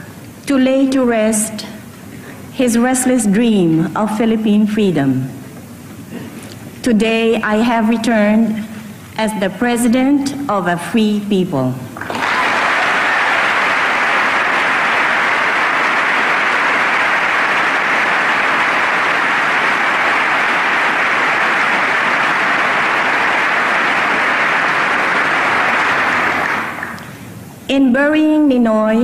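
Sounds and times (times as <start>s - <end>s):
audience applauding: 12.0s - 27.1s.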